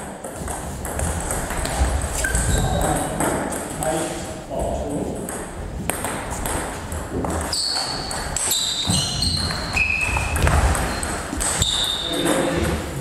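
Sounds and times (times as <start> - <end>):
shoes squeaking on floor: 0.3 - 3.4, 6.3 - 13.0
footwork thuds: 8.7 - 11.8.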